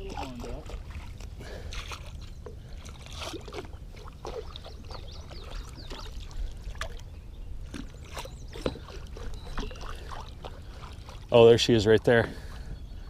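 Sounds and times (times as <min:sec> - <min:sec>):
water lapping against boat hull: 0:00.0 - 0:13.0.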